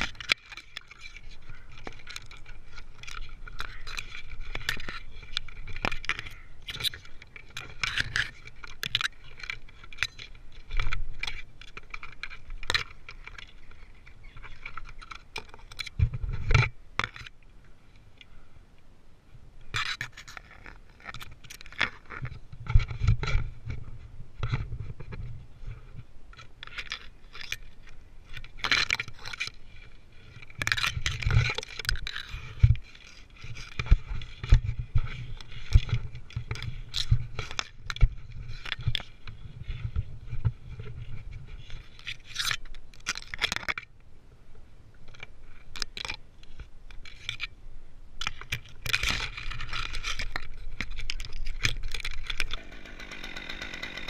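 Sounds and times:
rope scraping on bark: 0.0s - 16.8s
twigs brushing: 0.0s - 17.4s, 25.8s - 43.8s, 48.2s - 52.6s.

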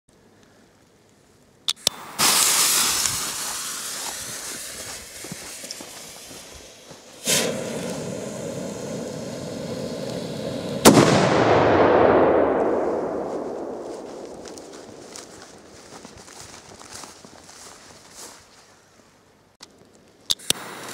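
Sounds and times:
fuse hissing and sputtering: 1.7s - 10.8s, 20.3s - 20.9s
firecracker bang: 2.0s - 5.6s, 7.2s - 15.6s.

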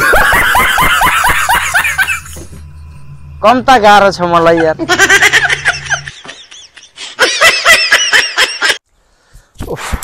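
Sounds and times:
person laughing: 0.0s - 2.4s, 4.4s - 8.8s.

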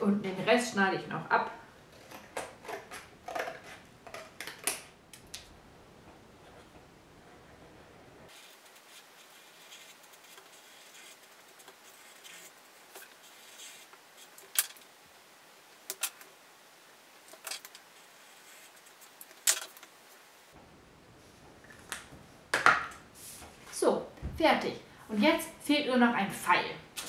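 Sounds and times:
pens scratching on paper: 8.3s - 14.4s, 18.2s - 19.1s.

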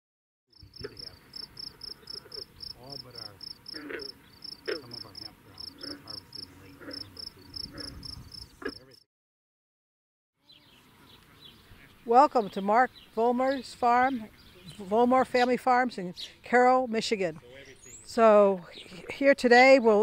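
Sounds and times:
insect chirping: 0.5s - 9.0s
scattered animal calls: 0.6s - 9.0s.

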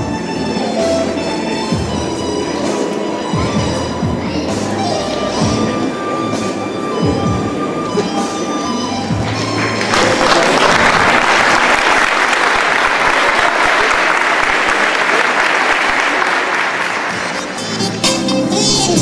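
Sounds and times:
background music: 0.0s - 11.8s, 16.0s - 19.0s
audience applauding: 9.2s - 18.0s.

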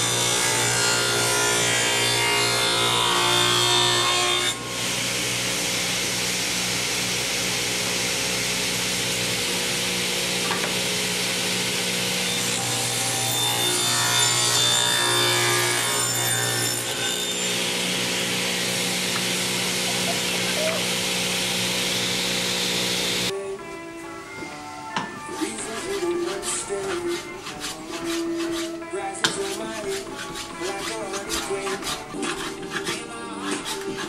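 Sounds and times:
saw blade cutting wood: 0.0s - 23.3s, 25.2s - 34.0s
table saw motor hum: 0.0s - 23.3s.

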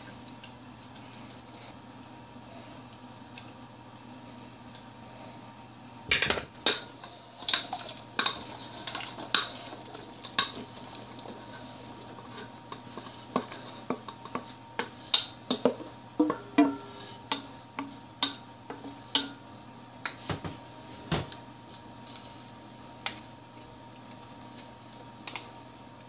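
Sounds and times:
metal bowl clinking on pot: 19.1s - 19.4s.

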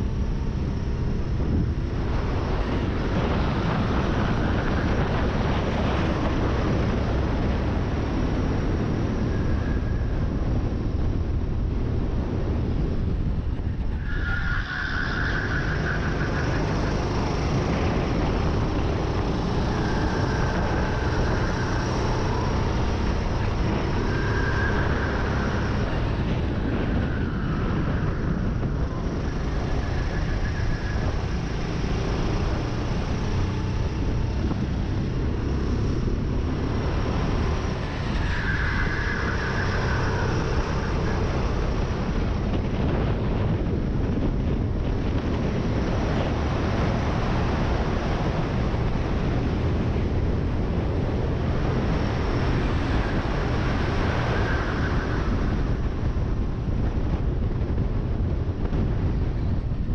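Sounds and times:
kart engine running hard: 14.5s - 59.9s.

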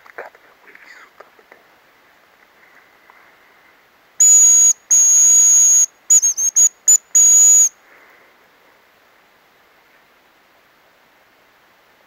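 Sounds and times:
decoy whistle blown: 4.2s - 7.7s.

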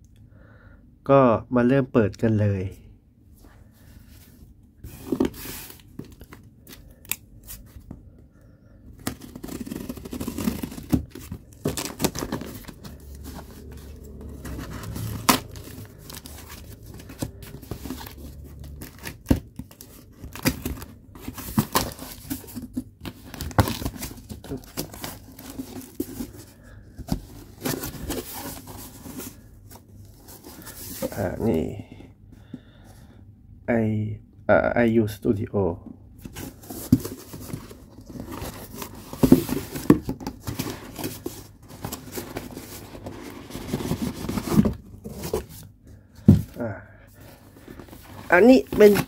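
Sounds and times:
cardboard rustling: 3.6s - 8.1s, 8.9s - 31.6s, 36.2s - 49.0s
tape tearing: 9.0s - 13.7s, 14.3s - 22.6s.

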